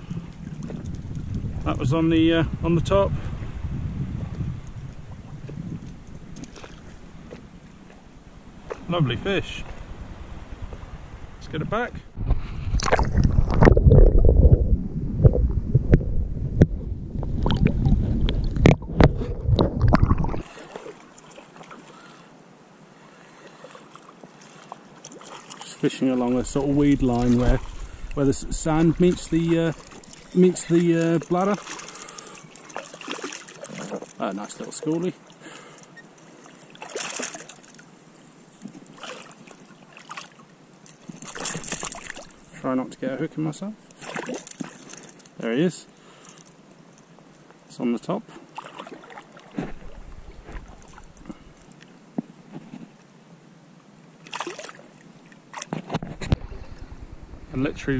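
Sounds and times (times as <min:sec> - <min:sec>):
underwater sloshing and bubbling: 0:00.0 - 0:01.7, 0:03.2 - 0:11.4, 0:12.1 - 0:47.3, 0:48.2 - 0:52.0, 0:54.2 - 0:57.8
wind: 0:00.0 - 0:57.9
water lapping against a kayak: 0:03.2 - 0:08.0, 0:12.2 - 0:42.6, 0:43.8 - 0:46.6, 0:48.3 - 0:51.9, 0:54.2 - 0:57.6
low rumble: 0:12.1 - 0:20.4
loud short splashes: 0:31.3 - 0:34.1, 0:36.6 - 0:37.8, 0:39.0 - 0:40.4, 0:41.2 - 0:42.4, 0:44.0 - 0:45.0, 0:48.6 - 0:51.1, 0:54.2 - 0:54.9.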